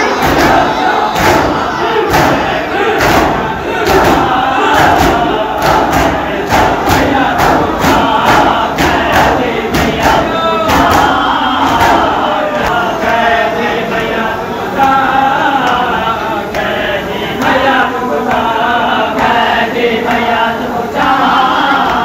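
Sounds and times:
crowd chanting: 0.0 - 22.0
chest-beating slaps: 0.2 - 12.8.

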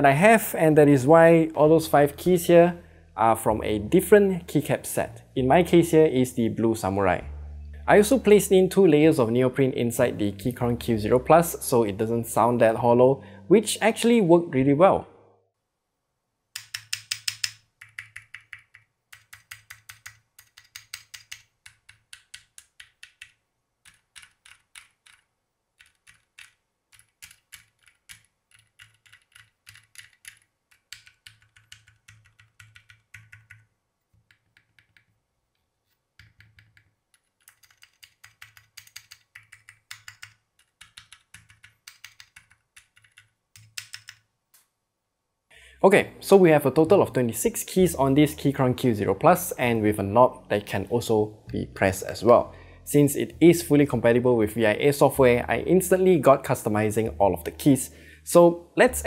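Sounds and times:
clacky keystrokes on number pad: 16.6 - 33.7, 36.2 - 44.2.

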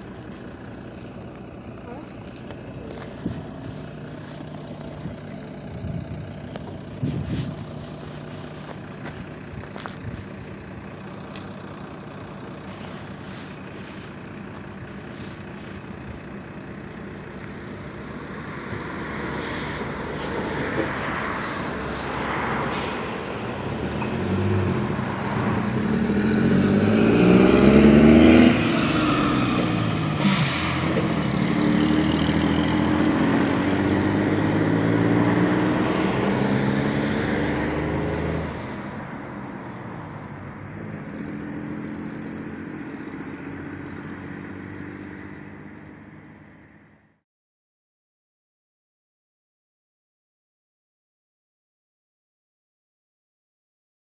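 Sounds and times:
bus diesel engine: 0.0 - 47.2
air brake hiss: 22.7 - 23.1, 30.2 - 31.0.

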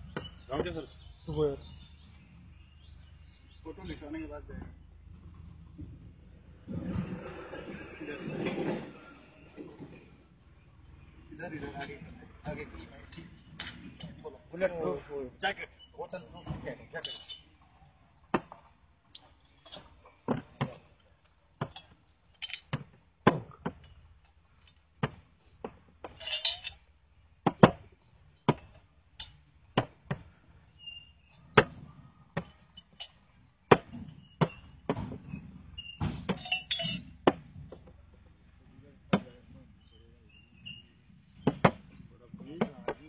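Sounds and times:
glass chinking: 17.0 - 17.5, 26.2 - 26.9, 36.3 - 37.2
glass bottles knocking on table: 36.0 - 37.4.

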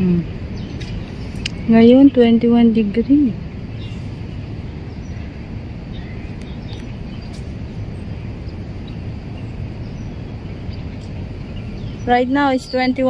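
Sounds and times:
faint bird chirps: 0.0 - 13.0
low background rumble: 0.0 - 13.0.

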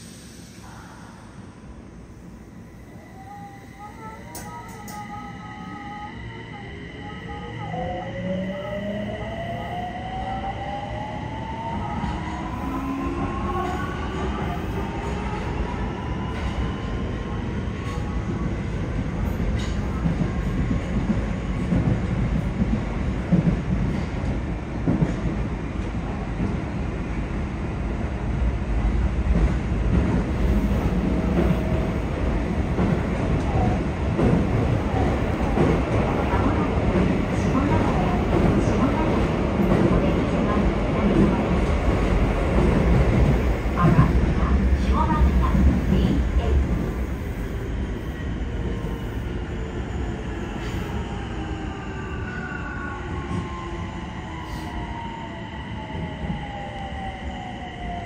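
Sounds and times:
train inverter whine: 1.7 - 15.6
rumble of train wheels on rail: 11.3 - 58.0.

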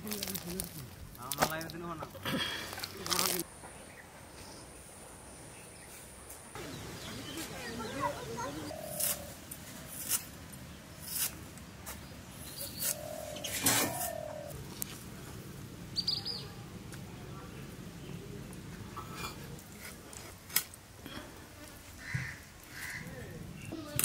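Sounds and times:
bird chirping: 5.3 - 9.3, 12.0 - 14.5, 15.9 - 16.5.

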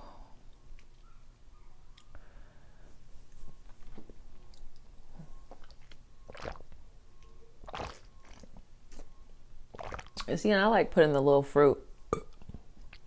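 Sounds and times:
person chewing: 5.4 - 6.8, 7.6 - 10.2
drinking from a plastic bottle: 5.5 - 6.8, 7.6 - 9.1, 9.7 - 10.3.

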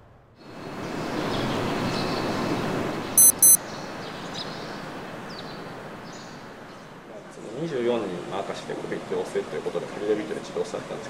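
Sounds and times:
outdoor background noise: 0.0 - 11.0
faint high chirps: 3.2 - 3.6
short high electronic beeps: 3.2 - 3.6.

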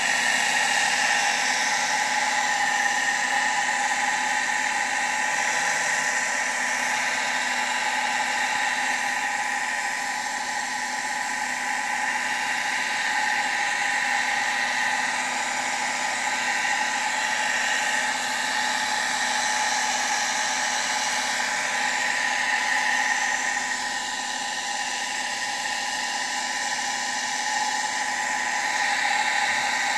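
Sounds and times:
electric water pump running: 0.0 - 29.9.

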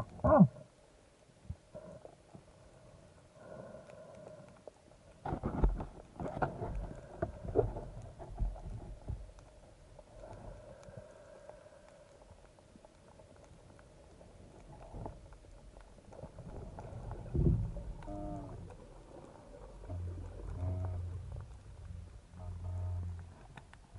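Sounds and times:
faint steady hum: 0.0 - 23.9
underwater knocks and thumps: 5.3 - 9.4, 16.3 - 23.6.

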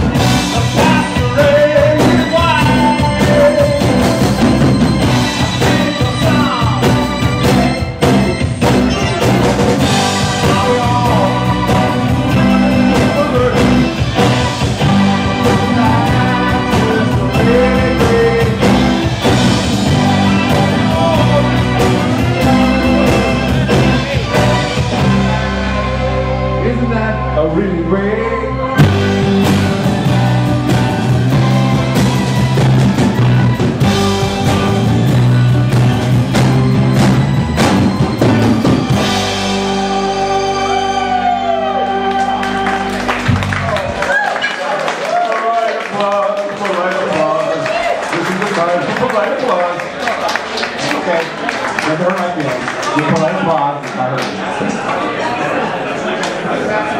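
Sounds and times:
drum kit: 0.0 - 26.4, 28.8 - 44.4
person singing: 0.0 - 31.8, 37.6 - 43.2
keyboard: 0.0 - 45.0
electric guitar: 0.0 - 45.2
bass guitar: 0.0 - 45.3.

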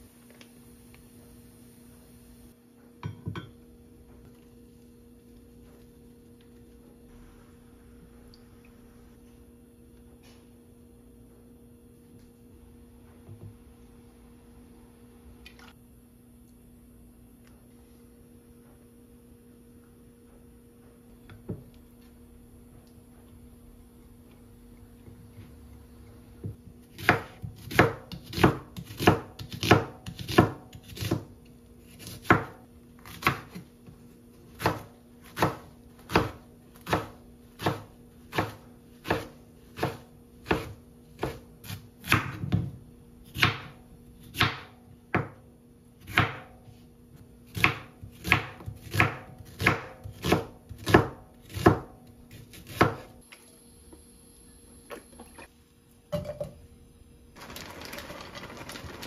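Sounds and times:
faint steady hum: 0.0 - 57.5
knife chopping on wooden board: 26.4 - 31.3, 31.9 - 45.4, 46.0 - 46.8, 47.5 - 53.1.

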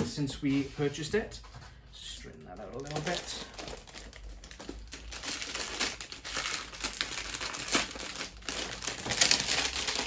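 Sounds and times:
packaging crinkling and rustling: 2.2 - 10.0.

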